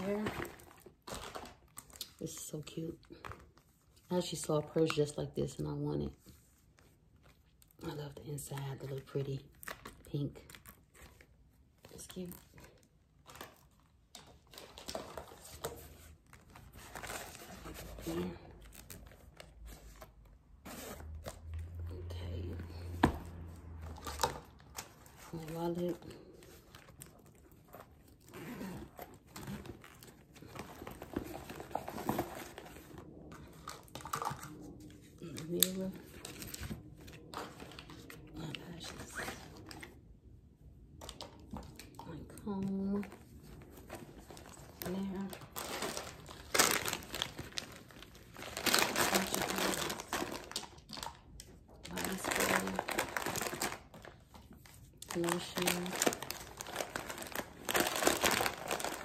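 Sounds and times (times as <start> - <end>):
plastic bag crinkling: 0.0 - 5.3, 41.0 - 59.0
wallet rustling in a bag: 0.0 - 39.9, 51.9 - 59.0.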